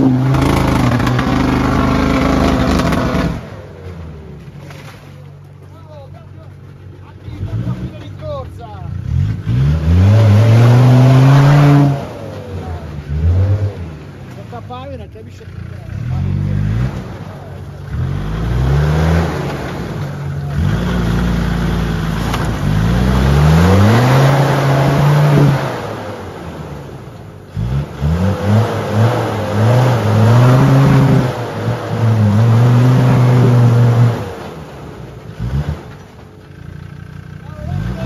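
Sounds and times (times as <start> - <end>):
engine revving hard: 0.0 - 3.6, 8.9 - 14.0, 17.8 - 26.2, 27.5 - 34.6, 37.6 - 38.0.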